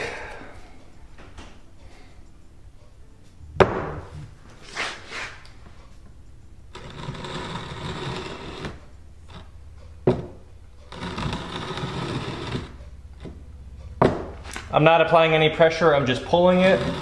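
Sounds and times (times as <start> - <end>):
sharp knock: 3.6 - 4.1
brick scraping on wooden board: 4.6 - 5.4, 6.7 - 9.5, 10.9 - 13.4, 16.3 - 17.0.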